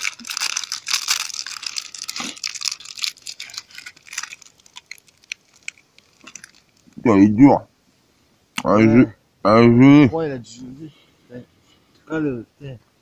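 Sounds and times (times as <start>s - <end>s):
paper crinkling: 0.0s - 7.0s.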